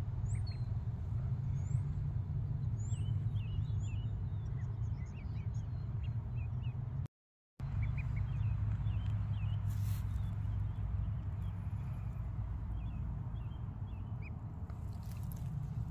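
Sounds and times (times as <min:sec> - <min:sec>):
steady low rumble: 0:00.0 - 0:15.9
chicks and ducklings peeping: 0:07.8 - 0:11.6.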